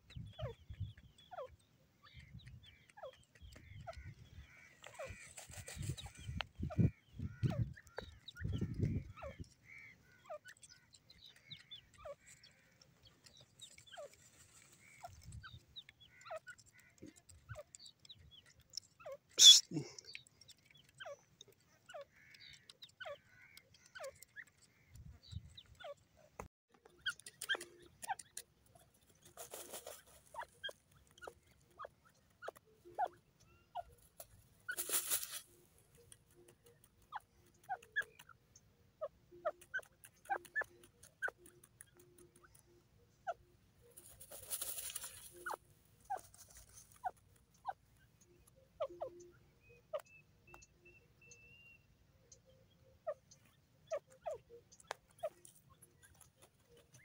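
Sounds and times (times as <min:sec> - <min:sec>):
bird rustling in dust: 0:14.1 - 0:15.1, 0:29.2 - 0:30.3, 0:34.7 - 0:35.6, 0:44.0 - 0:45.4
bird flicking dirt: 0:34.2 - 0:36.2, 0:44.0 - 0:45.4.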